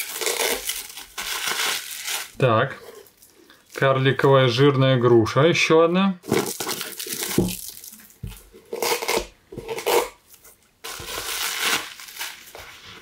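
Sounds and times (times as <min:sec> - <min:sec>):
plastic film rustling: 0:00.0 - 0:04.1, 0:06.2 - 0:08.5, 0:10.3 - 0:13.0.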